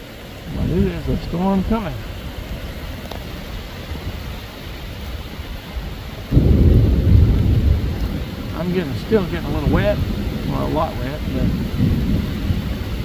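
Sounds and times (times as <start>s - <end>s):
heavy rain falling: 0.0s - 13.0s
deep rumble of thunder: 6.2s - 13.0s.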